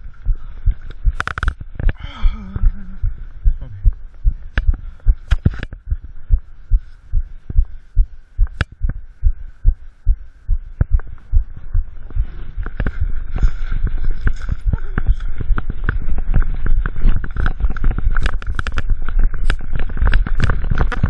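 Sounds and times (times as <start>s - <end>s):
sharp clicks: 0.7s - 2.0s, 8.4s - 9.0s, 17.2s - 21.0s.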